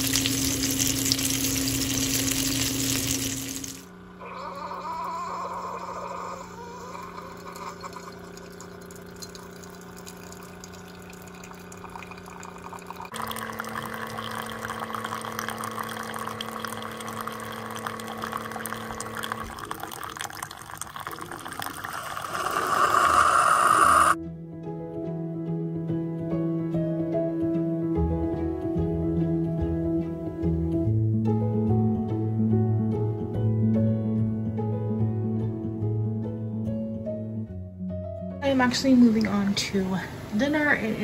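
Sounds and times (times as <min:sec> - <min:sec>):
coffee maker pump humming: 0:00.0 - 0:24.2
coffee pouring into a mug: 0:07.0 - 0:24.2.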